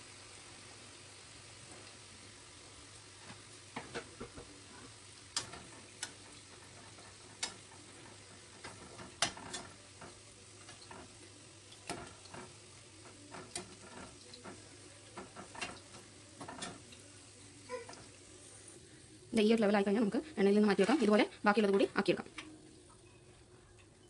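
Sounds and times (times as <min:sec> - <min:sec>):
food sizzling in hot oil: 0:00.0 - 0:24.0
skimmer clicking against pan: 0:05.3 - 0:14.6.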